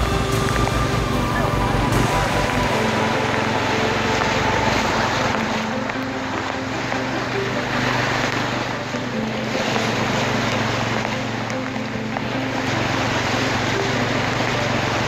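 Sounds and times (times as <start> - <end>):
rushing floodwater: 0.0 - 15.0
vehicle engine humming: 0.0 - 15.0.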